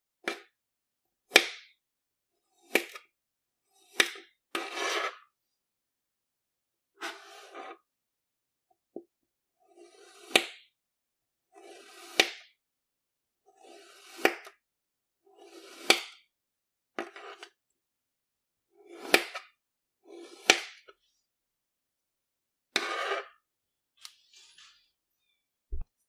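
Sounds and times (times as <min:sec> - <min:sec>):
knife slicing kinetic sand: 0:00.2 - 0:00.6, 0:01.3 - 0:01.8, 0:02.4 - 0:05.3, 0:06.9 - 0:07.9, 0:09.6 - 0:10.8, 0:11.4 - 0:12.6, 0:13.4 - 0:14.6, 0:15.2 - 0:16.3, 0:17.0 - 0:17.6, 0:18.7 - 0:21.0, 0:22.7 - 0:23.4.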